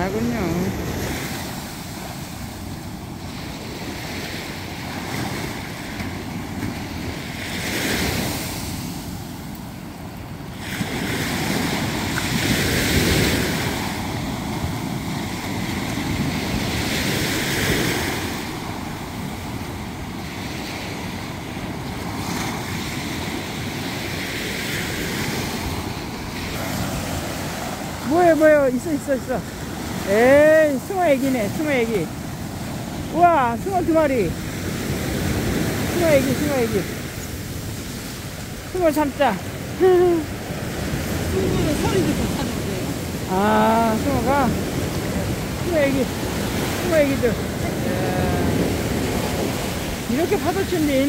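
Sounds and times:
surf breaking on beach: 0:10.6 - 0:51.0.

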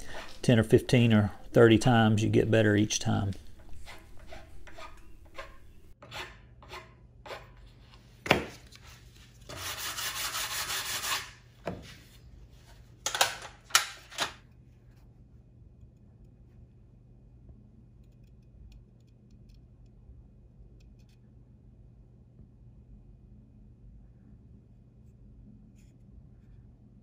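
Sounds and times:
sanding wood edge: 0:03.6 - 0:07.5, 0:09.5 - 0:11.4.

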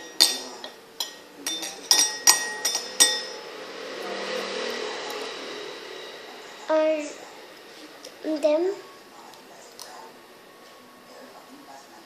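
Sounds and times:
glass cup clinking: 0:00.0 - 0:03.4.

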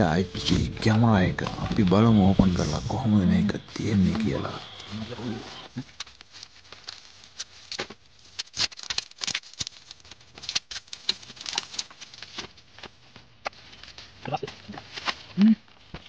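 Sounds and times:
plastic bag crinkling: 0:05.8 - 0:15.3
packing tape peeling and tearing: 0:05.8 - 0:15.9.

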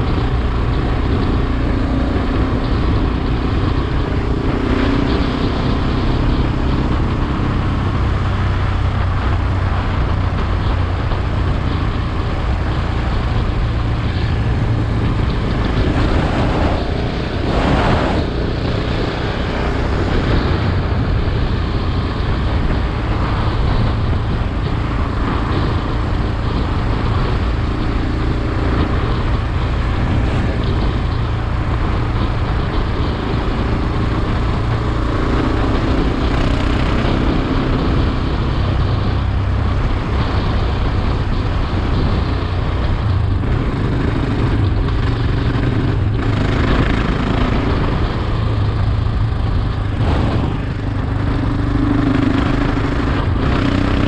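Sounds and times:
motorcycle engine running: 0:00.0 - 0:54.0.

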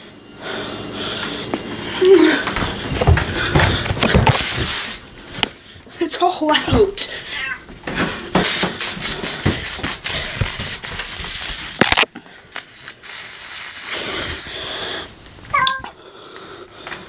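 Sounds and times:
cat meowing: 0:07.4 - 0:07.7, 0:15.5 - 0:16.0
aerosol can spraying: 0:08.4 - 0:11.8, 0:12.5 - 0:14.6.

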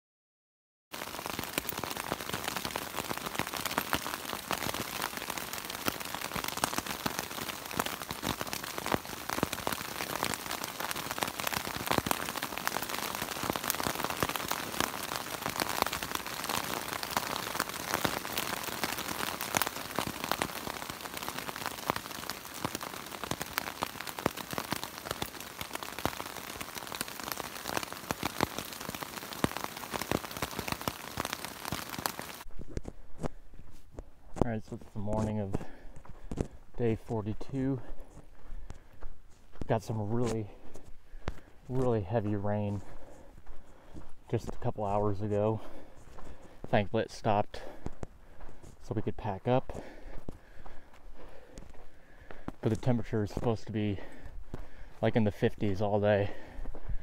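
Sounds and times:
heavy rain on tent fabric: 0:00.9 - 0:57.0.

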